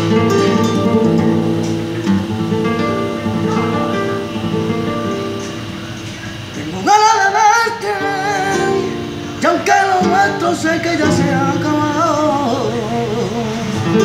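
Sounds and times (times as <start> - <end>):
classical guitar chords: 0.0 - 14.0
man singing: 6.3 - 14.0.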